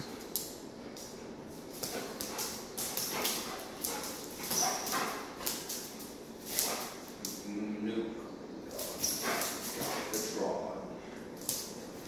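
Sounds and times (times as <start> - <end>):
dog claws clicking on tile: 0.0 - 7.5, 11.4 - 12.0.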